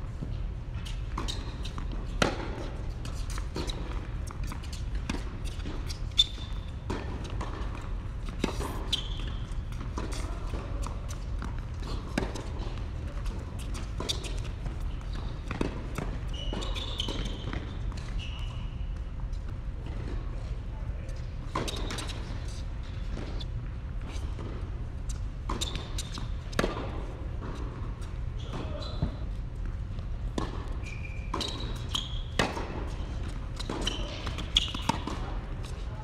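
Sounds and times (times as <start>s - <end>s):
shoe squeaks: 0.8s - 7.8s, 8.4s - 10.4s, 13.1s - 19.0s, 25.5s - 26.4s, 28.3s - 29.3s, 30.7s - 35.4s
rackets striking tennis ball: 30.3s - 35.8s.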